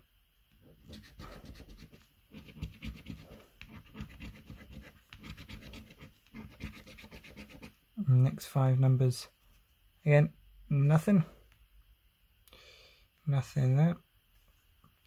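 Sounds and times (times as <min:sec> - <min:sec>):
coin scratching scratchcard: 0:00.8 - 0:07.7.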